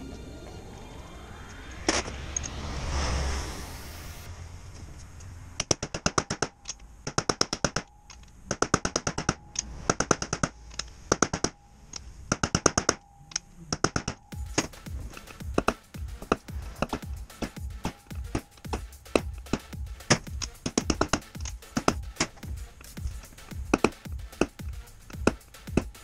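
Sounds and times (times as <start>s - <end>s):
hammer tapping on steel: 13.7s - 26.0s.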